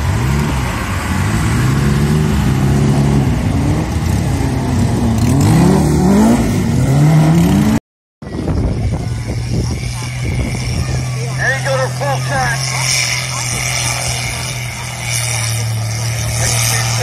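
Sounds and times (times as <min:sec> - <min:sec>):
race car engines revving: 0:00.0 - 0:17.0.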